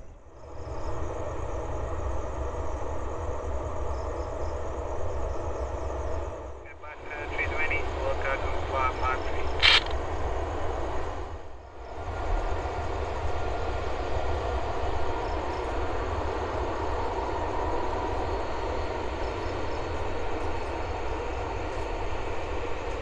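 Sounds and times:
jet engines rushing: 0:06.2 - 0:11.3.

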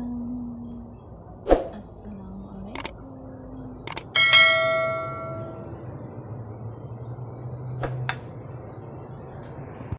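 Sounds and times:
low steady hum: 0:00.0 - 0:09.9
short clicks: 0:02.7 - 0:03.0, 0:03.8 - 0:04.1
notification bell ding: 0:04.1 - 0:05.6.

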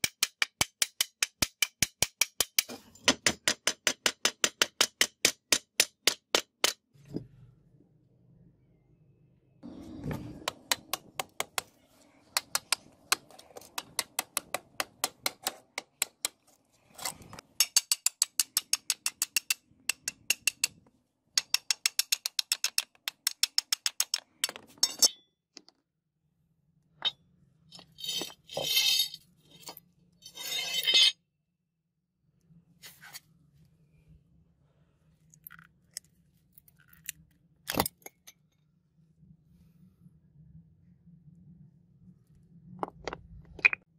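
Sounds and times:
hammer tapping steel chisel: 0:17.6 - 0:20.8
rough scraping and rattling: 0:27.8 - 0:31.2.

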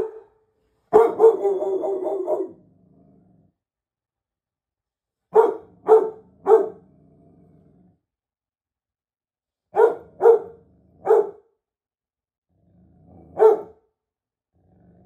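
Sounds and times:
large dog barking: 0:00.0 - 0:02.7, 0:05.3 - 0:06.9, 0:09.7 - 0:11.5, 0:13.1 - 0:13.9
dog growling: 0:02.3 - 0:03.7, 0:05.6 - 0:08.2, 0:10.4 - 0:11.3, 0:12.5 - 0:13.6, 0:14.5 - 0:15.0.

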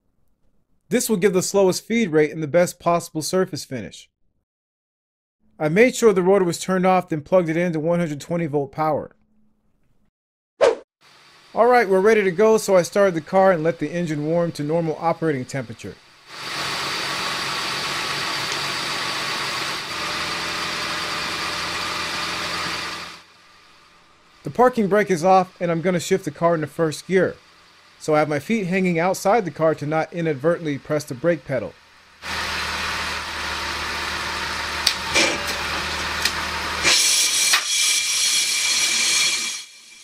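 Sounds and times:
brake lathe cutting rotor: 0:11.2 - 0:40.0
car engine idling: 0:16.0 - 0:36.9.

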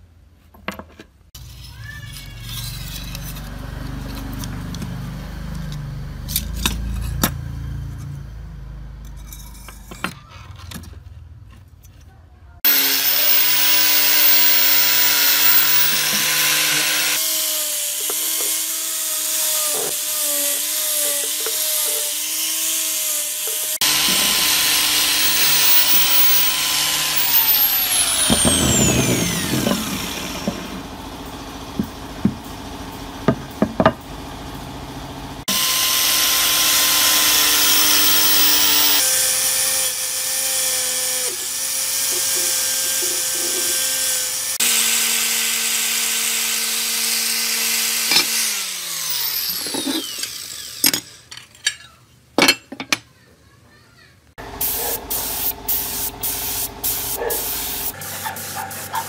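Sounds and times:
angle grinder grinding steel: 0:01.4 - 0:08.2, 0:12.7 - 0:32.6, 0:35.4 - 0:52.0, 0:56.5 - 0:59.0.

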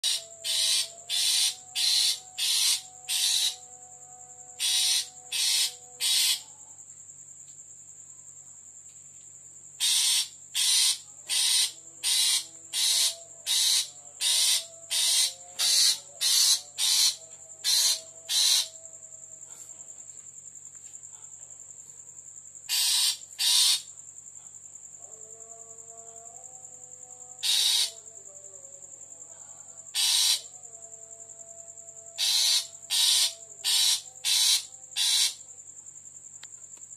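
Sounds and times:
insect hissing pulses: 0:00.0 - 0:03.7, 0:04.6 - 0:06.6, 0:09.8 - 0:18.8, 0:22.6 - 0:23.9, 0:27.4 - 0:28.0, 0:32.2 - 0:35.5
insects trilling: 0:00.0 - 0:36.9.

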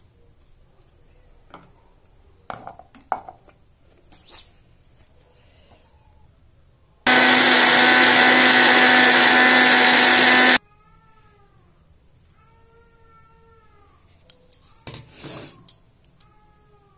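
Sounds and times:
mixer grinder running: 0:07.1 - 0:10.6.

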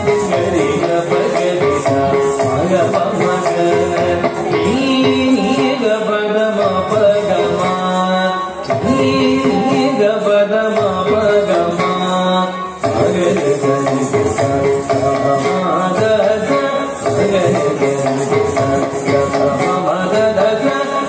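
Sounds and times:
classical indian music: 0:00.0 - 0:21.0.

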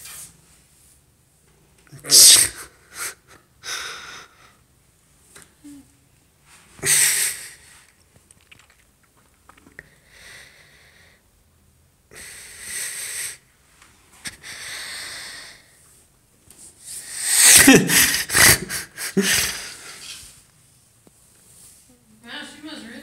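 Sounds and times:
person wheezing breaths: 0:16.9 - 0:20.2.

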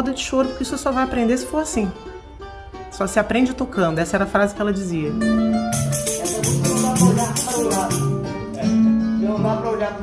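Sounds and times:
guitar: 0:00.0 - 0:10.0
cavaquinhos plucked: 0:05.2 - 0:08.9
shaken percussion jingling: 0:05.7 - 0:08.2.

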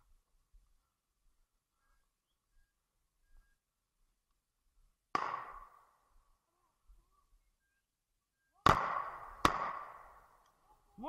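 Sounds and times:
shotgun shots echoing: 0:05.1 - 0:05.8, 0:08.6 - 0:10.3.

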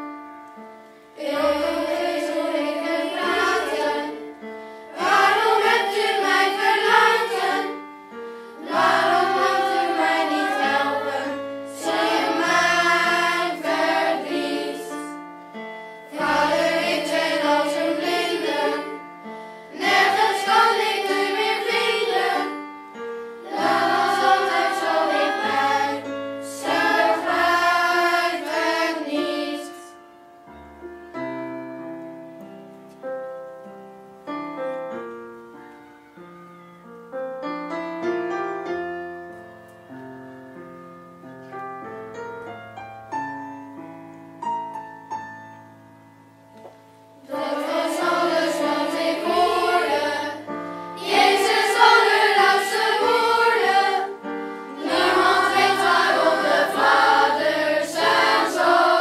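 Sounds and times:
piano accompaniment: 0:00.0 - 0:59.0
children's choir singing: 0:01.2 - 0:15.2, 0:16.1 - 0:30.0, 0:47.2 - 0:59.0.

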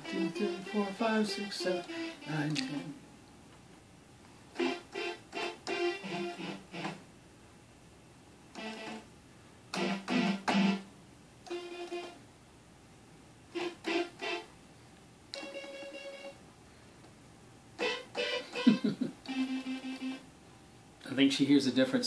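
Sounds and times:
synthesizer notes: 0:00.0 - 0:03.0, 0:04.6 - 0:07.0.

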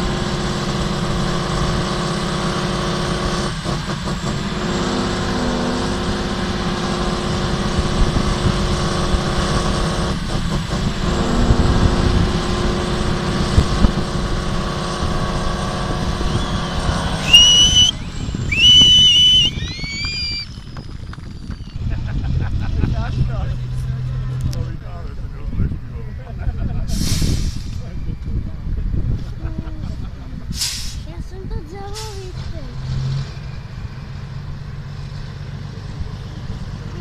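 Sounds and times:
diesel truck engine under load: 0:00.0 - 0:37.0
high-pitched whistles: 0:16.2 - 0:21.9.

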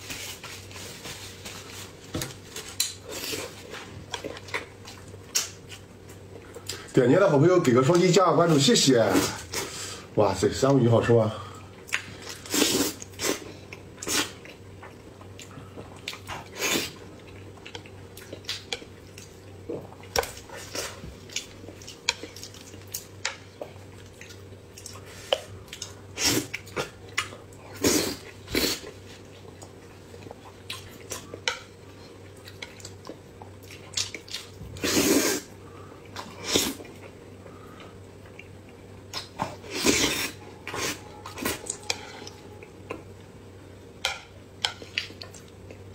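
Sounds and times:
faint steady hum: 0:00.0 - 0:45.9
person chewing food: 0:00.1 - 0:06.9, 0:11.7 - 0:35.4.

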